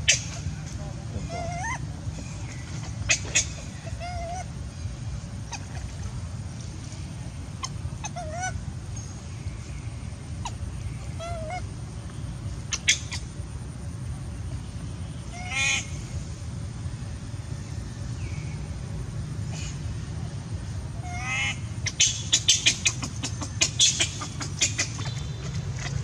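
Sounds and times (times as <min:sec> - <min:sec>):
steady low rumble: 0:00.0 - 0:26.0
baby monkey crying calls: 0:01.2 - 0:04.8, 0:05.4 - 0:06.0, 0:07.5 - 0:08.7, 0:10.4 - 0:11.7, 0:12.6 - 0:13.4, 0:15.2 - 0:16.0, 0:21.0 - 0:26.0.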